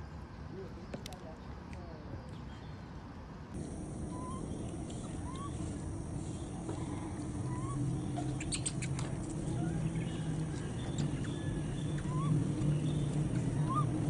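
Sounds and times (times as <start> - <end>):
faint rising squeaks: 3.6 - 14.0
low rumble: 3.6 - 14.0.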